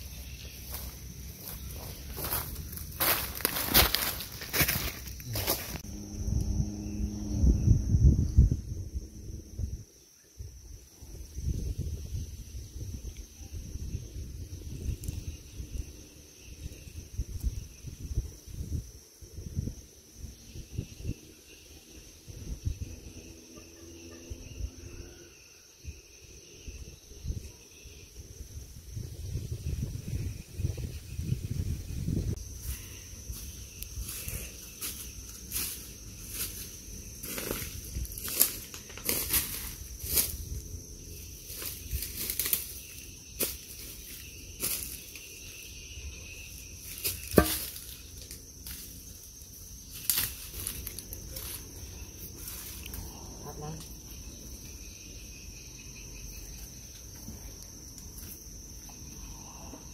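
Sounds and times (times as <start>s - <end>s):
dry leaves and twigs crackling: 0.0s - 5.8s, 32.4s - 53.1s
insects chirring: 0.0s - 59.9s.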